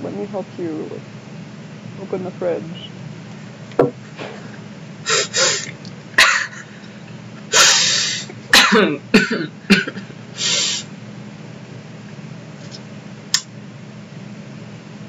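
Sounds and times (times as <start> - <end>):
person laughing: 5.1 - 6.8.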